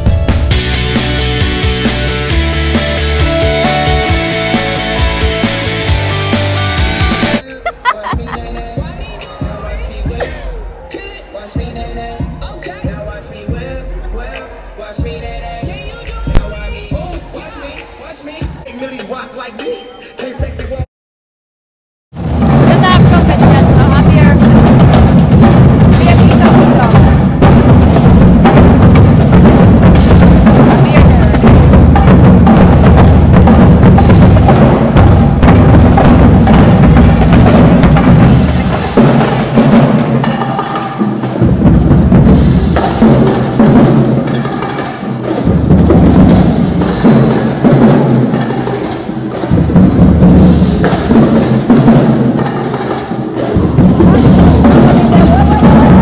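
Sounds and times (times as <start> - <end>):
deep bass drum beats: 0.0 - 10.7, 15.0 - 17.5, 22.1 - 44.7, 45.3 - 48.4, 49.5 - 52.3, 53.4 - 56.0
drumline cadence: 22.1 - 56.0.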